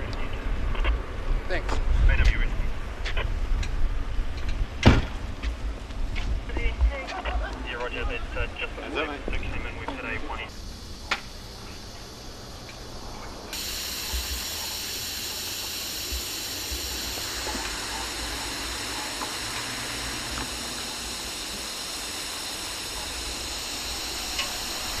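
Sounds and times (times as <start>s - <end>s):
air hissing out of tyre: 10.5s - 25.0s.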